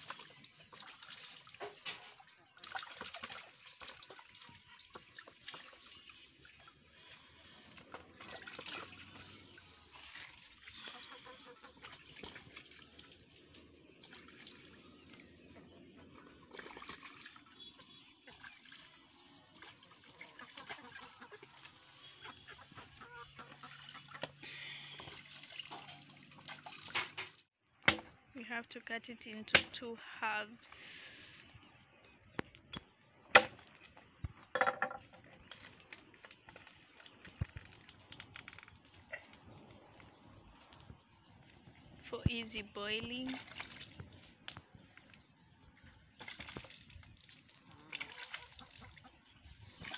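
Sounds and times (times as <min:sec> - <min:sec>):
small water splashes: 0:00.0 - 0:27.5, 0:35.3 - 0:41.8, 0:42.8 - 0:49.9
water sloshing in a basin: 0:00.0 - 0:27.5, 0:42.0 - 0:49.9
machete chopping on wooden plank: 0:27.8 - 0:28.1, 0:33.3 - 0:33.6.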